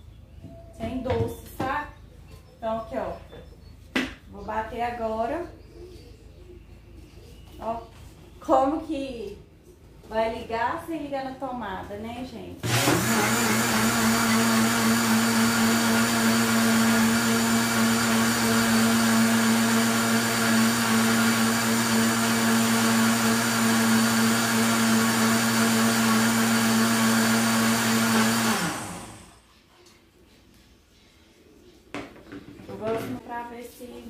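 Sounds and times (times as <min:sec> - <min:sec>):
blender motor whine: 0:12.6 - 0:29.4.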